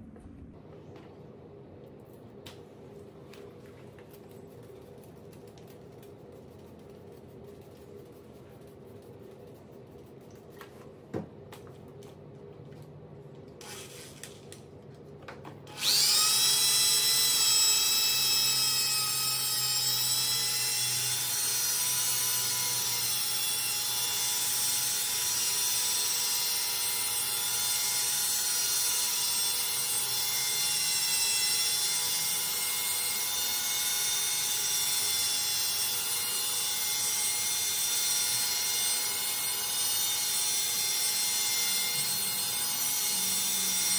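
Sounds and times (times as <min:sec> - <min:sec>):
electric drill whining: 0:15.7 - 0:43.9.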